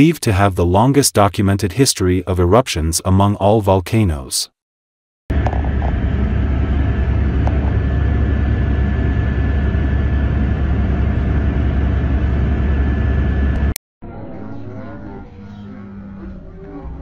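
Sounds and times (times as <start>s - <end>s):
faint constant whine: 5.3s - 13.7s
aircraft engine rumble: 5.3s - 13.8s.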